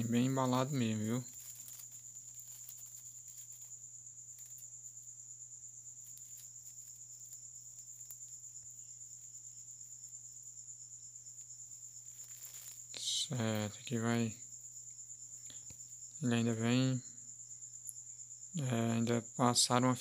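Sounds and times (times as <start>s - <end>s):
bubble wrap crackling: 0.0s - 5.2s, 5.9s - 9.3s, 12.0s - 13.8s
insect trill: 0.0s - 20.0s.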